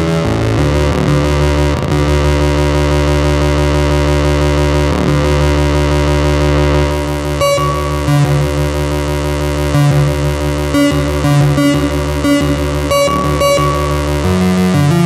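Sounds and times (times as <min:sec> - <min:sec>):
low synthesizer drone: 0:00.0 - 0:15.0
short repeated synth notes: 0:06.2 - 0:15.0.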